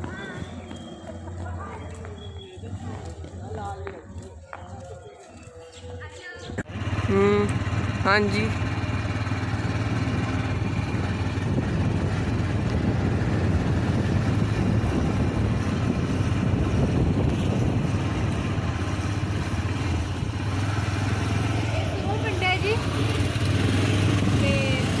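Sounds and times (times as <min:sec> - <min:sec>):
road noise: 0:00.0 - 0:25.0
motor scooter engine running: 0:06.6 - 0:25.0
wind noise: 0:09.7 - 0:25.0.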